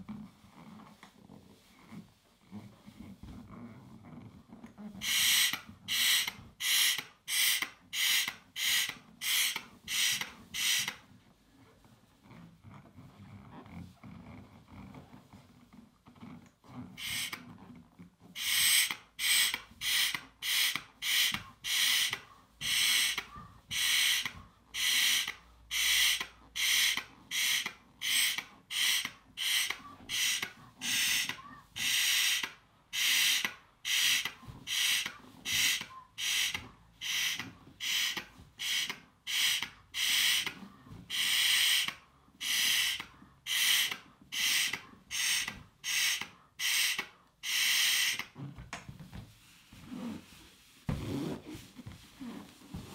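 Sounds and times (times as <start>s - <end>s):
hissing breaths inflating balloon: 5.0s - 11.1s, 16.9s - 17.5s, 18.3s - 48.5s.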